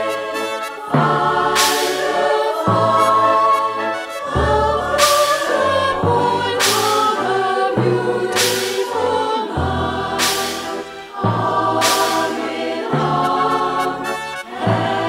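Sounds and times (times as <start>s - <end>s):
choir singing in harmony: 0.0s - 15.0s
low bass line: 4.3s - 8.6s.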